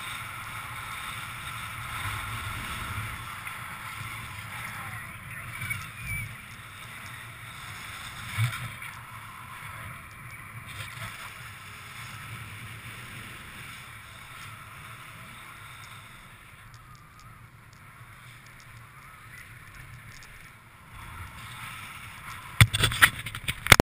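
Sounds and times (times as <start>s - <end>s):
wind buffeting microphone: 0.0s - 11.6s
travel over snow: 0.0s - 23.8s.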